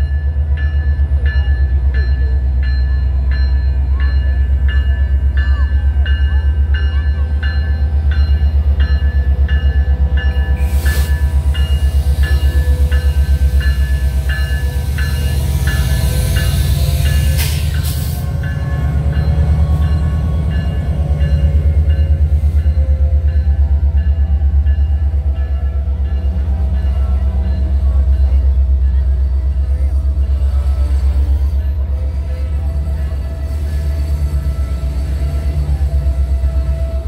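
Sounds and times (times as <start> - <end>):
locomotive bell ringing: 0.0 - 37.0
locomotive engine rumble: 0.0 - 37.0.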